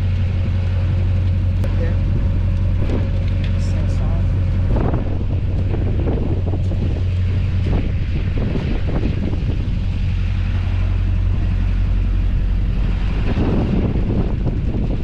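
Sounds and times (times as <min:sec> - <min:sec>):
vehicle engine idling: 0:00.0 - 0:15.0.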